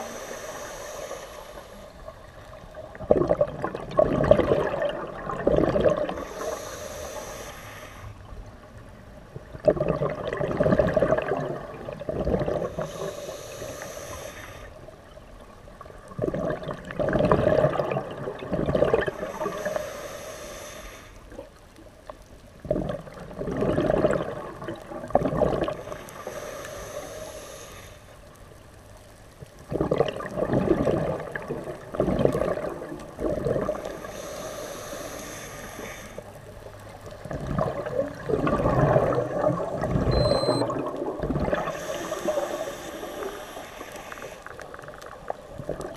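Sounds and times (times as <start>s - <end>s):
scuba regulator inhale hiss: 0.0s - 2.3s, 6.1s - 8.2s, 12.6s - 14.8s, 19.1s - 21.4s, 25.8s - 28.3s, 33.7s - 36.4s, 41.6s - 44.9s
exhaled air bubbling: 0.0s - 7.6s, 9.3s - 21.7s, 22.4s - 28.0s, 29.4s - 45.9s.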